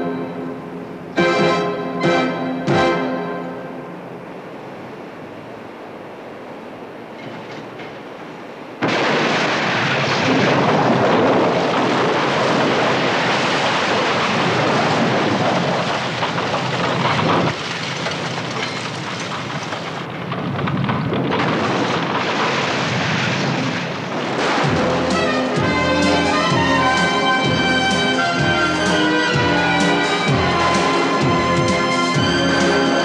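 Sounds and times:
bus crashing down a cliff: 8.8s - 33.0s
falling rocks and debris: 8.8s - 33.0s.

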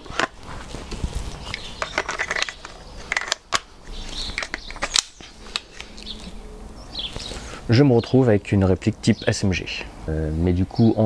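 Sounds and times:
plastic toy gun rattling: 1.4s - 5.9s
sharp clicks: 1.5s - 6.3s.

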